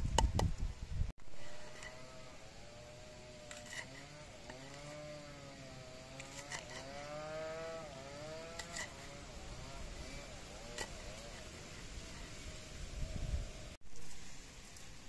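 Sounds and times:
small engine running: 1.4 - 12.4.

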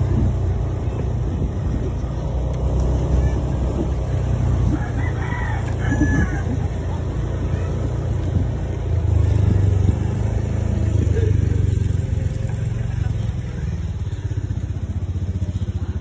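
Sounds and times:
vehicle engine rumble: 0.0 - 16.0
rooster crowing: 4.6 - 6.8.

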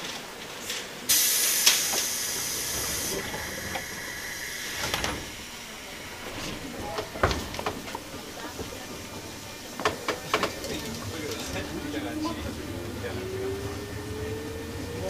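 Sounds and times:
compressed air hiss: 1.1 - 5.5.

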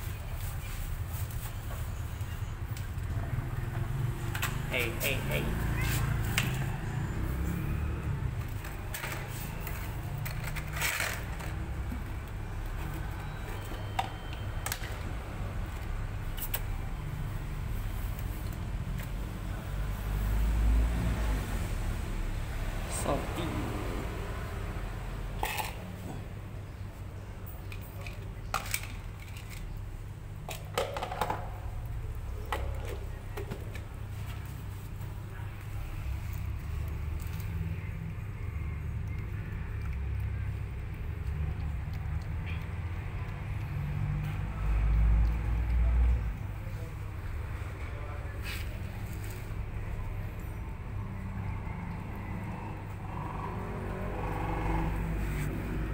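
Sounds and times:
plastic scraping on concrete: 8.4 - 12.1, 25.3 - 26.1
plastic dishes clicking and tapping: 30.5 - 31.6.

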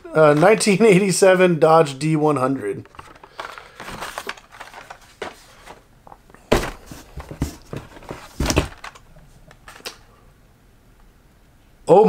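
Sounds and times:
cardboard rustling and scraping: 2.9 - 5.9, 6.5 - 9.8.

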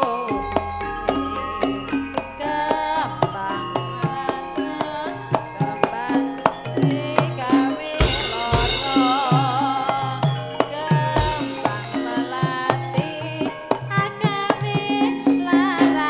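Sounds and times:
gamelan ensemble playing: 0.0 - 16.0
hand drum strokes: 0.0 - 16.0
wavering held melody: 0.0 - 16.0
deep low gong stroke: 0.3 - 3.5.

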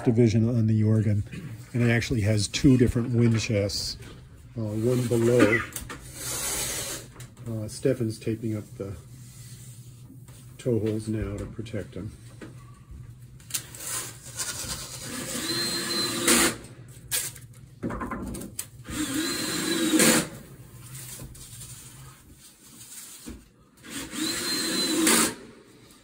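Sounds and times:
tape tearing: 13.4 - 15.1, 17.1 - 17.5.

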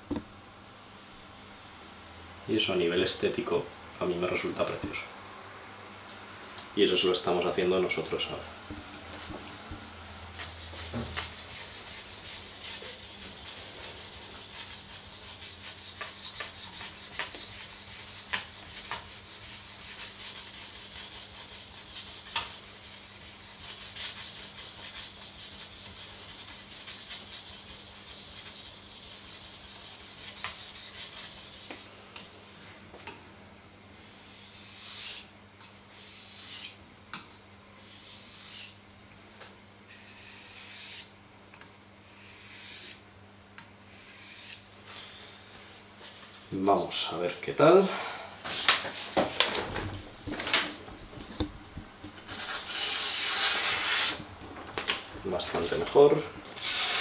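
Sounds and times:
knife blade scraping on whetstone: 10.1 - 31.8, 33.9 - 36.8, 37.8 - 38.8, 39.9 - 41.1, 42.0 - 43.0, 43.8 - 44.6, 52.3 - 54.2, 56.6 - 57.0.

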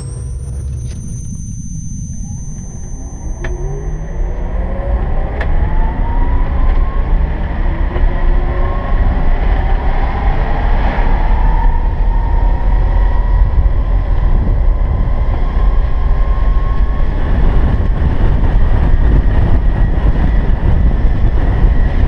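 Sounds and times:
electric motor whine: 0.0 - 9.4
low rumble of wind and road: 0.0 - 22.0.

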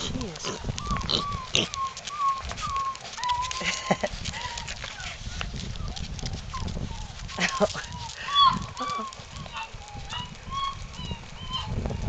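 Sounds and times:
puppies whining: 0.0 - 12.0.

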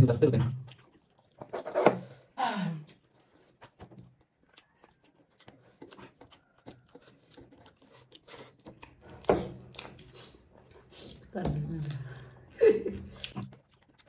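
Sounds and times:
soft chewing and mouth clicks: 0.3 - 14.0.

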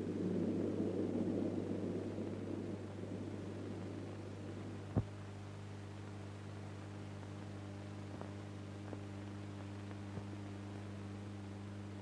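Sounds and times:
electrical hum: 0.0 - 12.0
faint hiss: 0.0 - 12.0
faint ticks: 5.9 - 10.6.

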